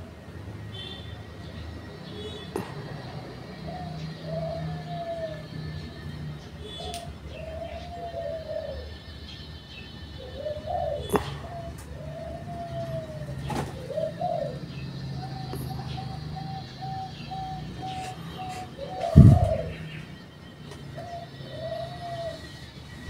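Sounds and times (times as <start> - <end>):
doves cooing: 0.0 - 23.0
low steady hum: 19.0 - 21.2.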